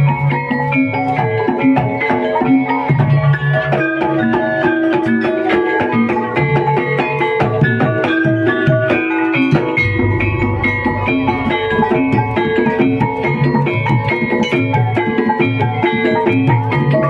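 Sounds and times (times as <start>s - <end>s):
low drum strokes: 9.6s - 14.4s
struck metal gong notes: 9.6s - 15.0s.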